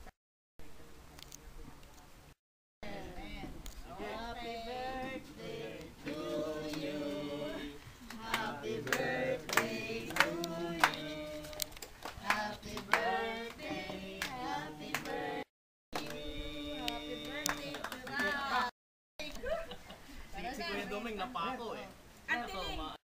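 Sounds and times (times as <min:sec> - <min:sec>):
group of voices singing: 0:02.8 - 0:18.7
sharp hand claps: 0:08.1 - 0:13.1.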